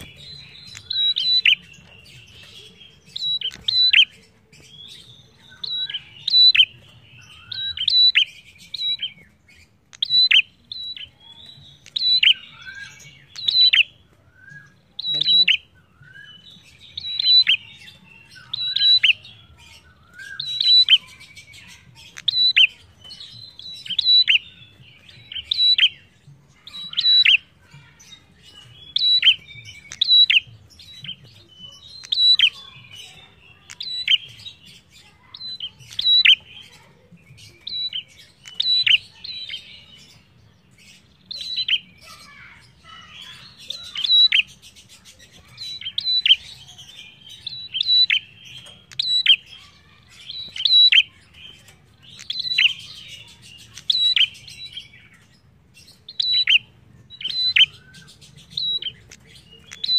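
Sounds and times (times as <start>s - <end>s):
songbird chirping: 0.0s - 59.9s.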